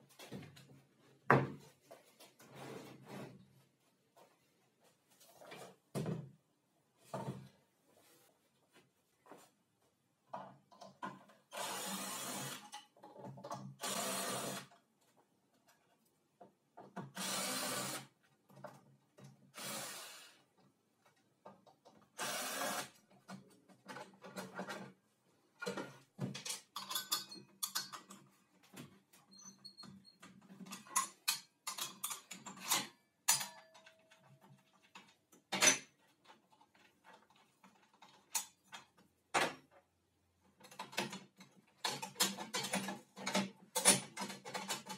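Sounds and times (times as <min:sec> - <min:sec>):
cordless drill bursts: 0:11.5 - 0:12.6, 0:13.8 - 0:14.7, 0:17.2 - 0:18.1, 0:19.6 - 0:20.4, 0:22.2 - 0:22.9
clicks and knocks of handled parts: 0:23.0 - 0:44.9.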